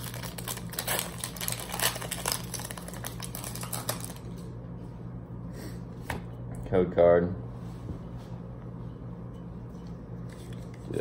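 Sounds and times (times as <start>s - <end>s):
foil wrapper tearing and crinkling: 0.0s - 4.4s
low steady hum: 0.0s - 11.0s.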